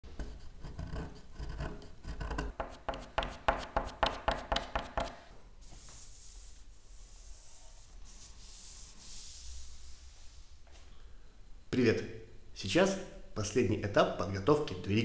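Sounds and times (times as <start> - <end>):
chisel scraping wood: 0.0 - 5.3
sandpaper rubbing wood: 2.6 - 10.4.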